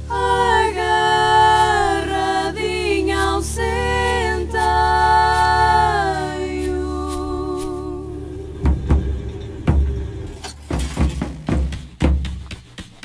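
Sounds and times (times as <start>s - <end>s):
women singing in harmony: 0.0s - 10.4s
low drone: 0.0s - 10.5s.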